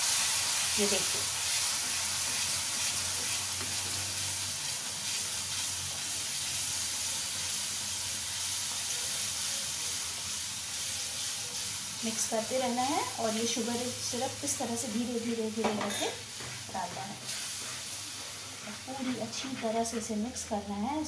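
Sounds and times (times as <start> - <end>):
flour sizzling in pan: 0.0 - 21.0
wooden spatula stirring: 16.4 - 20.3.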